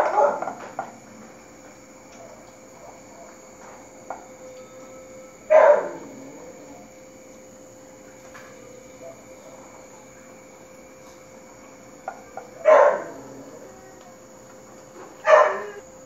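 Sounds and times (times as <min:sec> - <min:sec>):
dog bark: 0:00.0 - 0:00.6, 0:05.5 - 0:06.4, 0:12.6 - 0:13.4, 0:15.2 - 0:15.8
crickets chirring: 0:00.0 - 0:16.0.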